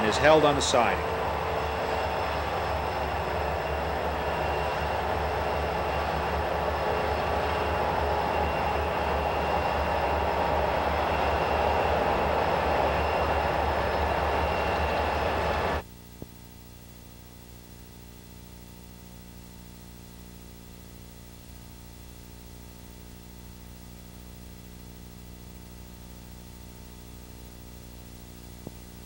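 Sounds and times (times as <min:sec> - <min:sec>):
freight train rumbling: 0:00.0 - 0:15.8.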